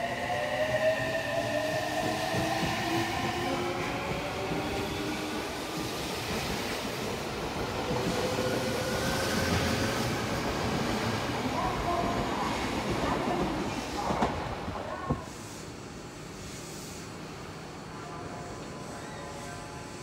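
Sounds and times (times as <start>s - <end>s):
train wheels rolling on rails: 0.1s - 15.6s.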